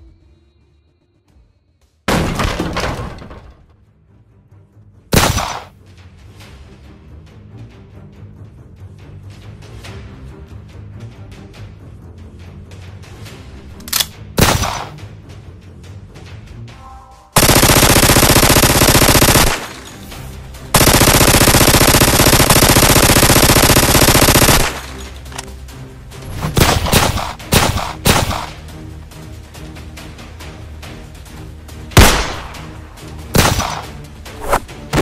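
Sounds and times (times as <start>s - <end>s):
background music: 0.0s - 35.0s
gunshots: 5.2s - 5.7s, 14.4s - 15.0s, 17.4s - 25.4s, 26.5s - 28.6s, 32.0s - 35.0s.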